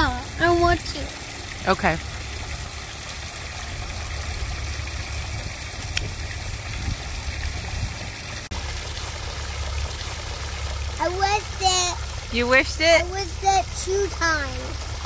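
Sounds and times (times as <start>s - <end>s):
waterfall pouring into pool: 0.0s - 15.0s.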